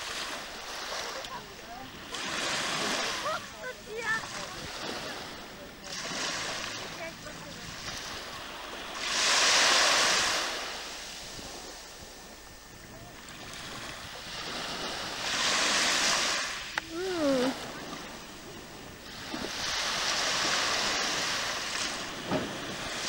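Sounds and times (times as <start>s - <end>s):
water washing and surging: 0.0s - 11.7s
wind on microphone: 1.5s - 23.0s.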